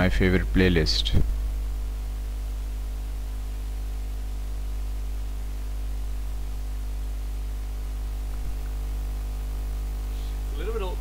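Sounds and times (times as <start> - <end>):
electrical hum: 0.0 - 11.0
even hiss: 9.5 - 11.0.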